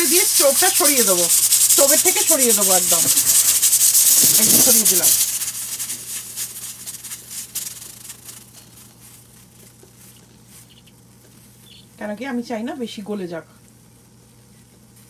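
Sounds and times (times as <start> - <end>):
pressure cooker hissing steam: 0.0 - 9.3.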